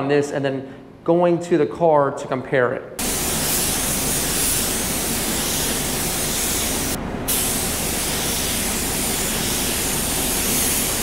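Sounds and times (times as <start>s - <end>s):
spray gun hissing: 3.0s - 11.0s.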